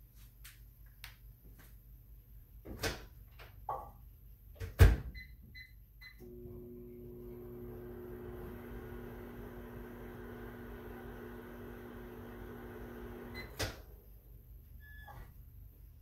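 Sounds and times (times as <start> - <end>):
microwave oven humming: 6.1 - 14.0.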